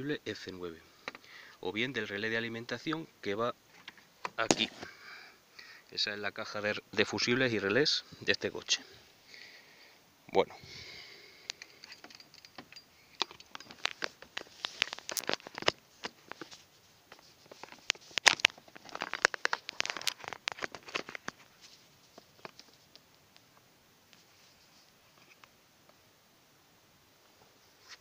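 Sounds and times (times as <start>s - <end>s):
small plastic parts clicking and rattling: 11.5s - 21.5s.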